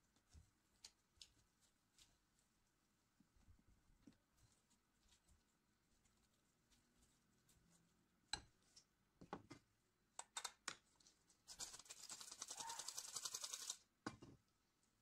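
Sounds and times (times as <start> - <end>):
flour sifter clicking rattle: 11.5 - 13.8.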